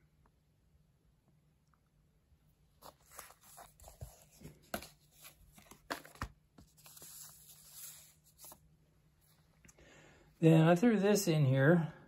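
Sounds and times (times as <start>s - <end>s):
paper sleeve rustling: 2.8s - 8.6s.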